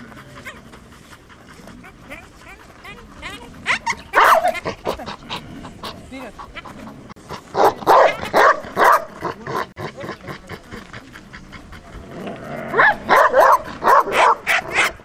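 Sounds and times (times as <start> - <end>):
dog barking: 3.6 - 5.0, 7.6 - 9.2, 12.7 - 15.0.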